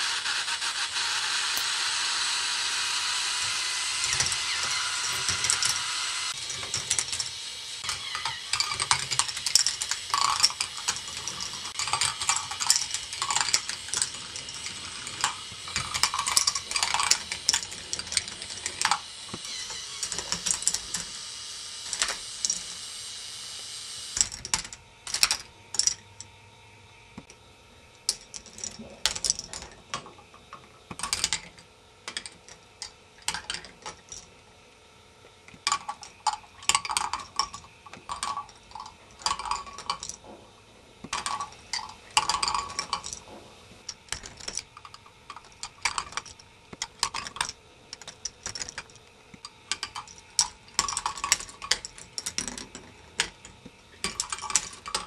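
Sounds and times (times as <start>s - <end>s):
plastic balls clattering on tracks: 6.4s - 21.1s, 28.1s - 34.3s, 35.5s - 40.4s, 41.0s - 55.0s.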